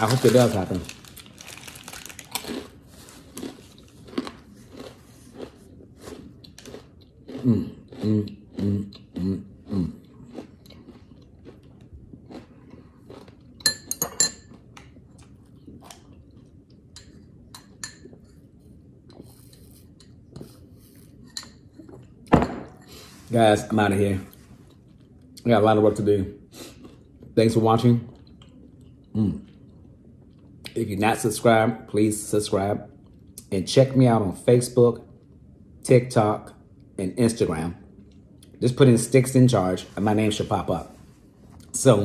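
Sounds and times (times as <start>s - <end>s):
crunching crisp cookie: 0.0s - 13.6s.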